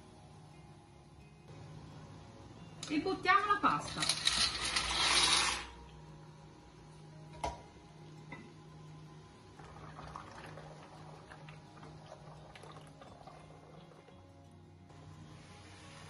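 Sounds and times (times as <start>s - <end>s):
water bubbling in a pot: 9.5s - 14.4s.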